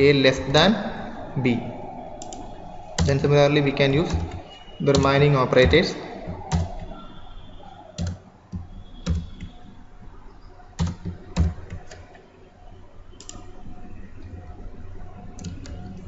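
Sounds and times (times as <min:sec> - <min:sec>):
computer keyboard keys clicking: 0:02.2 - 0:03.3, 0:04.0 - 0:07.0, 0:08.0 - 0:09.6, 0:10.8 - 0:12.1, 0:13.2 - 0:13.6, 0:15.4 - 0:16.0.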